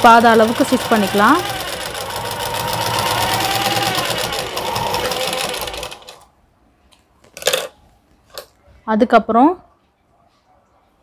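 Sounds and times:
sewing machine stitching: 0:00.0 - 0:06.3.

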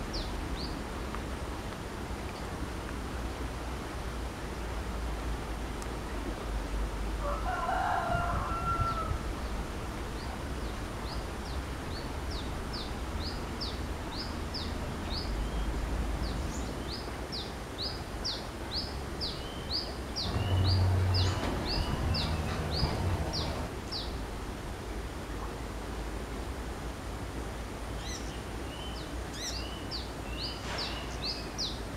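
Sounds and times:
rooster crowing: 0:07.2 - 0:09.3, 0:20.4 - 0:23.7
brief low hum: 0:20.2 - 0:23.7.

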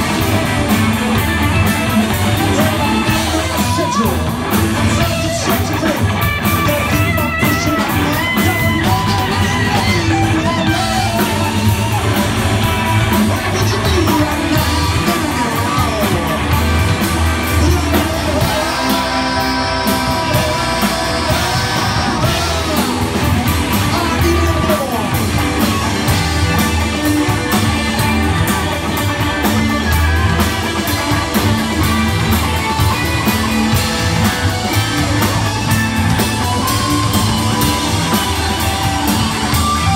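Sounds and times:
bass guitar: 0:00.0 - 0:39.9
drum kit: 0:00.0 - 0:39.9
electric guitars: 0:00.0 - 0:39.9
person singing: 0:02.1 - 0:27.4.

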